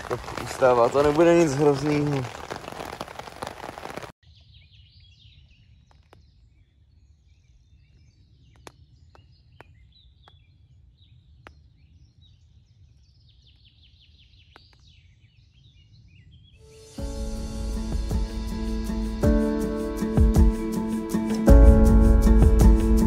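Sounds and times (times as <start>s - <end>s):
birds chirping and trilling: 4.3s - 17.0s.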